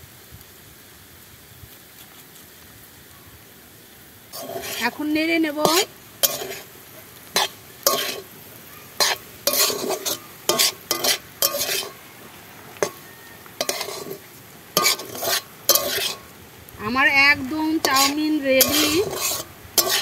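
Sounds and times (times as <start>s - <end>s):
faint frying sizzle: 0.0s - 20.0s
metal spatula scraping noodles: 4.4s - 5.0s, 5.6s - 8.3s, 8.9s - 12.1s, 12.8s - 16.3s, 17.8s - 20.0s.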